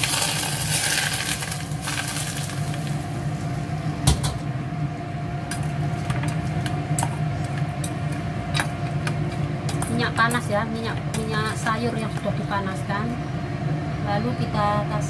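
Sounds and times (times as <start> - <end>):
hot oil sizzling: 0.0 - 3.8
low steady hum: 0.0 - 15.0.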